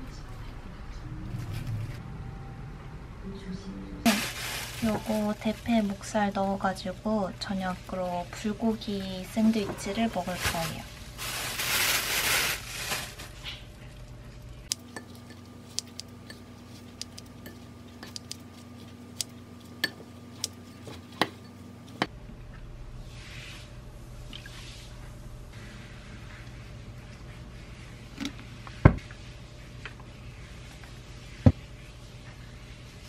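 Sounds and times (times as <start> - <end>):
plastic bag rustling: 4.1 - 6.9, 9.3 - 13.8.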